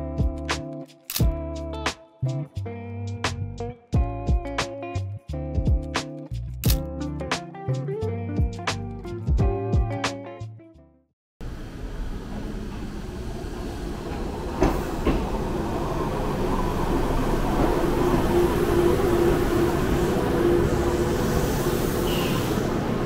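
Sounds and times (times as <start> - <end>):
train rumble and hum: 11.4 - 23.0.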